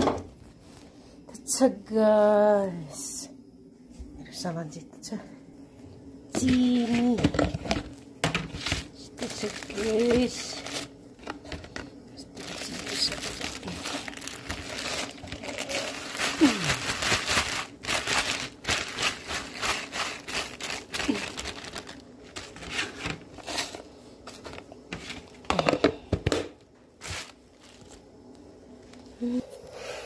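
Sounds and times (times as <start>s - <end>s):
plastic containers knocking: 6.4s - 8.9s
plastic bag crinkling: 6.4s - 25.3s.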